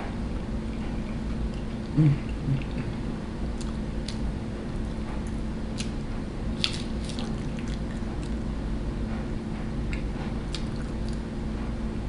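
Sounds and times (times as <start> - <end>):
steady low hum: 0.0 - 12.0
close chewing of food: 0.7 - 6.0, 6.6 - 8.5, 9.9 - 11.3.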